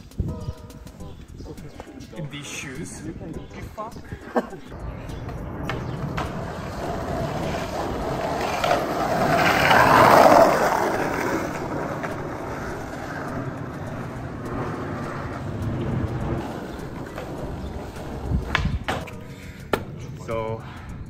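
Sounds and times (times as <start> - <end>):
skateboard wheels rolling on asphalt: 4.7 - 20.2.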